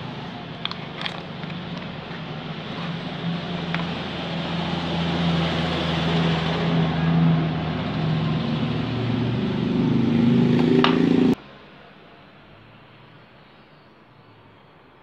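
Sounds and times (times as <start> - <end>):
engine humming: 0.0 - 11.4.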